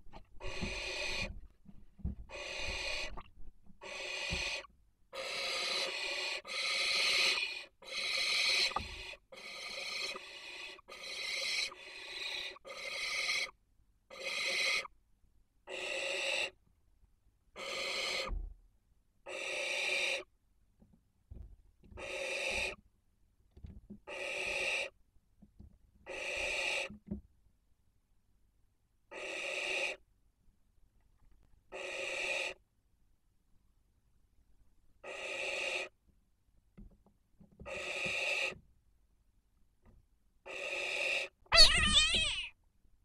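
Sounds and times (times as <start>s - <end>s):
barn owls hissing: 0.4s - 1.3s, 2.3s - 3.2s, 3.8s - 14.9s, 15.7s - 16.6s, 17.6s - 18.3s, 19.3s - 20.3s, 22.0s - 22.8s, 24.1s - 25.0s, 26.1s - 26.9s, 29.1s - 30.0s, 31.7s - 32.6s, 35.0s - 35.9s, 37.7s - 38.6s, 40.5s - 42.6s.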